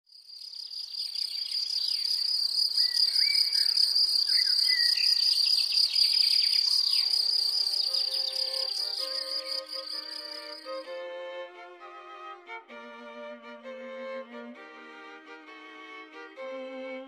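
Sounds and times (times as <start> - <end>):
insect trill: 0.1 - 10.8
short bird chirps: 0.4 - 10.7
violin music: 6.7 - 17.0.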